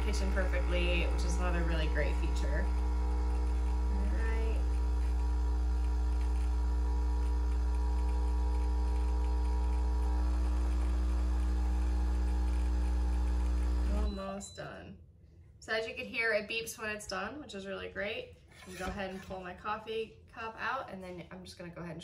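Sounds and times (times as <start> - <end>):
coffee maker pump droning: 0.0 - 14.4.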